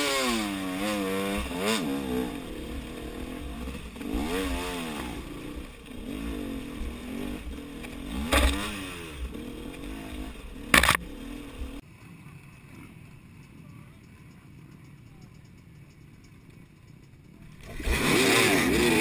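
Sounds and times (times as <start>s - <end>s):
dirt bike engine revving: 0.0s - 11.8s, 17.5s - 19.0s.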